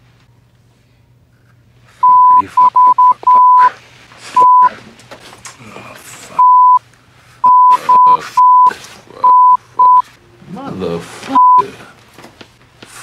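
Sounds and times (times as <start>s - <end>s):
censor bleep tone: 2.0s - 3.7s, 4.4s - 4.7s, 6.4s - 6.8s, 7.5s - 10.0s, 11.4s - 11.6s.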